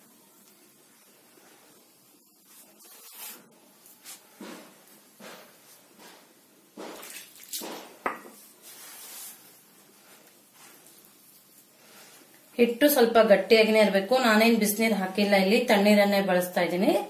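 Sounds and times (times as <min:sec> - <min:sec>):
hands swishing and patting dough: 0:01.3 - 0:12.5.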